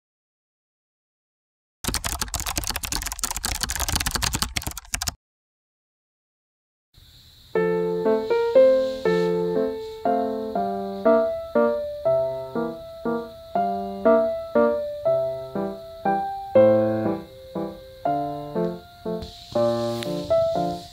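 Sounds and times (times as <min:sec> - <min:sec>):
rapid clicking noise: 0:01.8 - 0:05.2
gentle solo piano music: 0:07.6 - 0:20.9.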